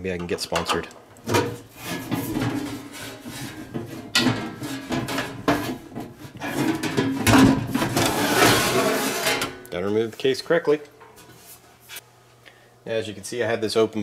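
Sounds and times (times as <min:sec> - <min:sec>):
metal panel scraping and clattering: 0:00.5 - 0:09.7.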